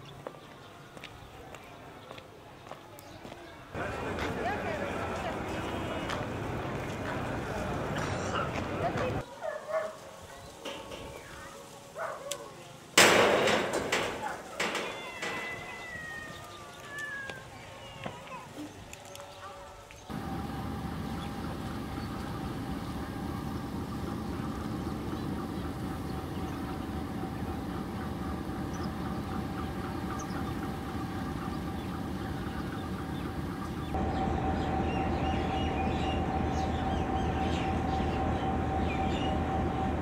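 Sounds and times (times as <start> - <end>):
diesel locomotives idling: 3.7 - 9.3, 20.1 - 40.0.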